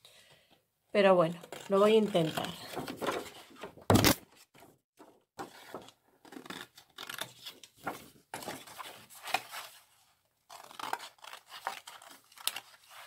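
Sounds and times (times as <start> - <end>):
paper sheets rustling: 2.1 - 5.9.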